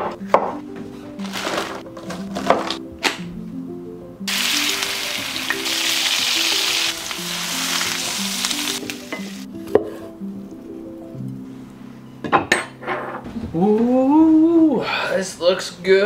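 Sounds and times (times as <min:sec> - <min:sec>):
background music: 0:00.0 - 0:16.0
food sizzling in frying pan: 0:04.3 - 0:09.5.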